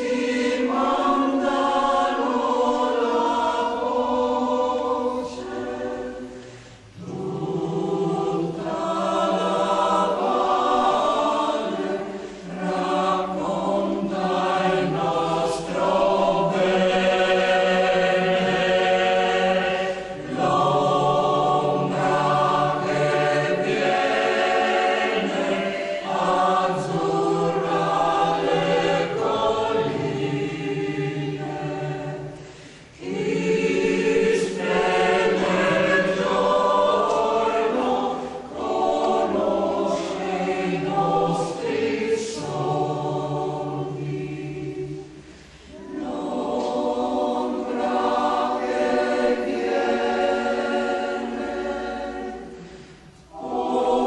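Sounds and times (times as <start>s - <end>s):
mixed choir singing: 0.0s - 54.0s.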